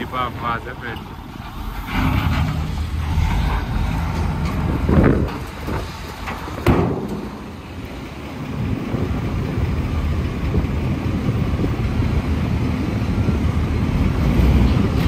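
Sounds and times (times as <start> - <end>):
heavy vehicle engine rumbling: 0.0 - 15.0.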